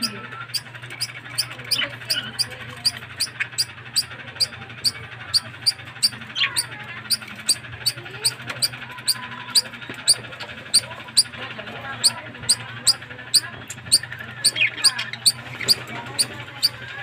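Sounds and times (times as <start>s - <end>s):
steady high ticking: 0.0s - 11.3s
budgerigars chirping and chattering: 0.0s - 17.0s.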